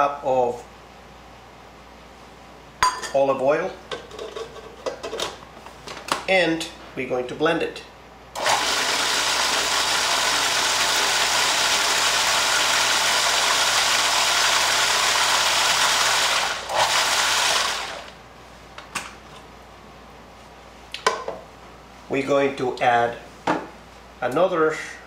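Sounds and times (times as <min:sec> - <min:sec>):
electric food chopper running: 0:08.4 - 0:18.2.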